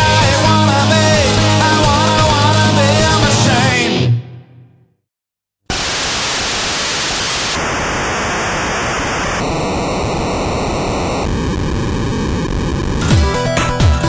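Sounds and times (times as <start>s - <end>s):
background music: 0.0s - 4.8s, 13.0s - 14.0s
static-like white noise: 5.7s - 13.0s.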